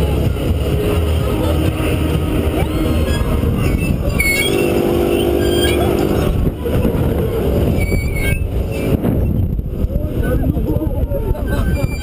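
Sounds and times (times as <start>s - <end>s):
wind rushing over microphone: 0.0s - 12.0s
high squeaks from pivots: 2.9s - 6.3s, 7.7s - 9.4s, 11.4s - 12.0s.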